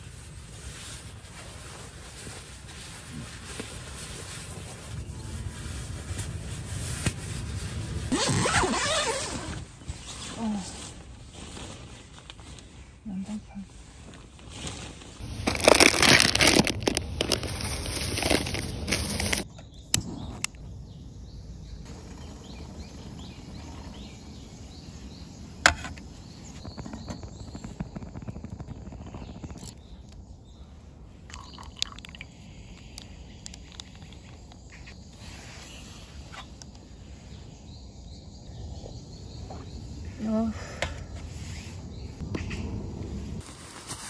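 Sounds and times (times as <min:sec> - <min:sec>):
birds chirping: 0:15.2 - 0:43.3.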